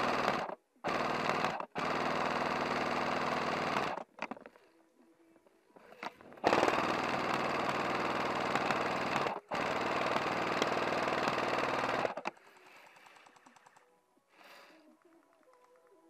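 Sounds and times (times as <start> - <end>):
airsoft gun firing bursts: 0.0 - 4.1, 6.4 - 13.8.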